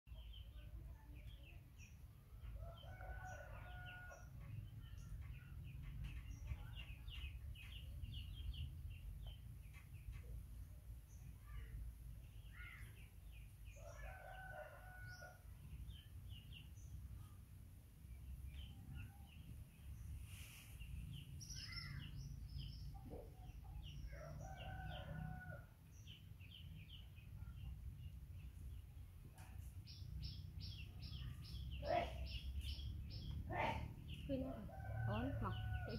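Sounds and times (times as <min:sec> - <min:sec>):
small birds chirping: 0:00.1 - 0:35.9.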